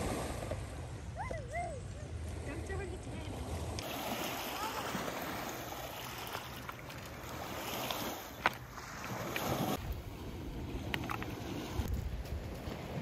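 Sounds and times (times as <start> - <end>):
waves washing over pebbles: 3.4 - 13.0.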